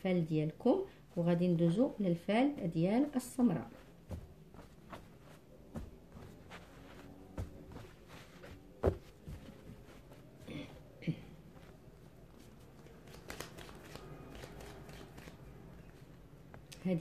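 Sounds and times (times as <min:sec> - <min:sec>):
playing cards rustling: 0:12.4 - 0:15.5.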